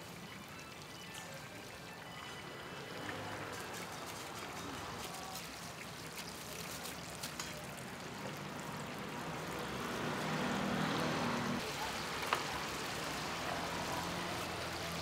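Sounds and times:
faint chatter: 0.5 - 9.8, 11.0 - 15.0
oil sizzling in a deep fryer: 7.0 - 15.0.

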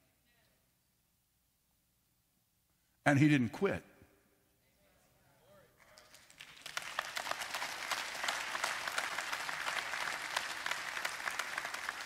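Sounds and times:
crowd applauding: 5.8 - 12.0.

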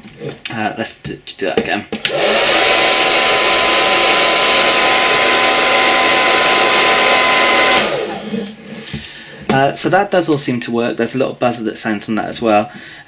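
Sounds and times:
hairdryer blowing: 2.0 - 9.1.

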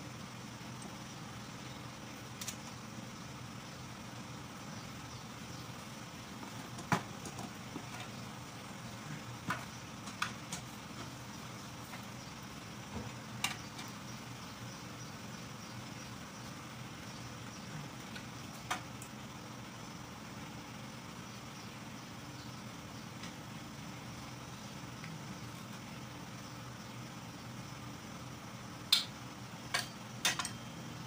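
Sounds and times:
low background hum: 0.0 - 31.0
tools clinking on metal: 29.7 - 30.7.

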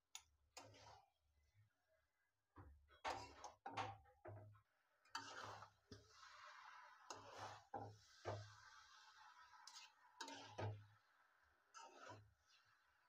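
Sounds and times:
metal spoon scraping wok: 0.6 - 1.1, 5.1 - 10.9, 11.7 - 12.8.

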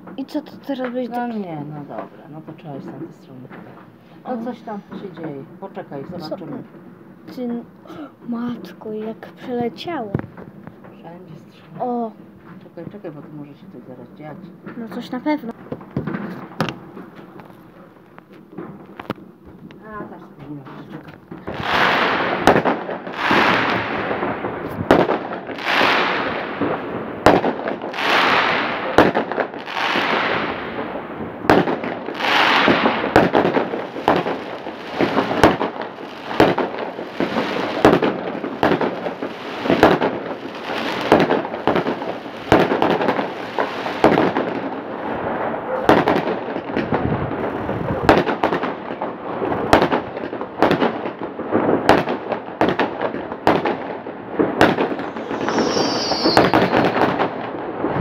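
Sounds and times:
fireworks bangs: 0.0 - 58.0
fireworks crackling hiss: 3.2 - 5.1, 21.3 - 50.0, 53.8 - 58.0.

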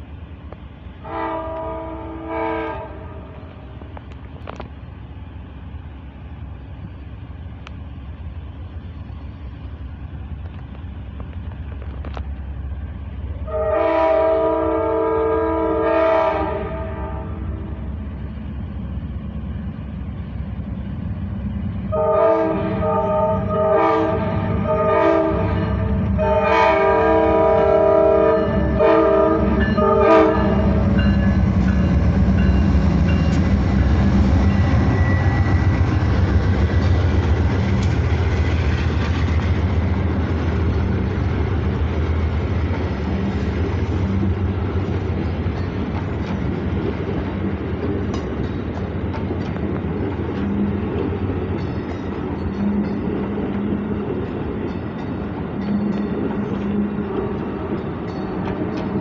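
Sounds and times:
train cars rumbling past: 0.0 - 59.0
train horn blasts: 1.0 - 3.6, 13.4 - 17.8, 21.9 - 36.2.

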